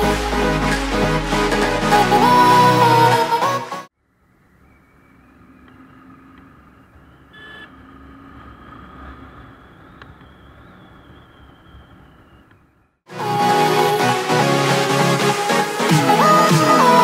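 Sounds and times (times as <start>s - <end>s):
wind and road noise: 4.0s - 13.1s
short beep: 7.4s - 7.7s.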